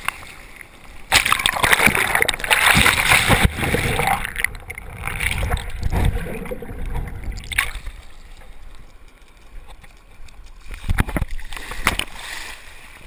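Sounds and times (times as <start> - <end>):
muffled underwater wash: 0.0 - 13.0
sharp water splashes: 1.1 - 8.2.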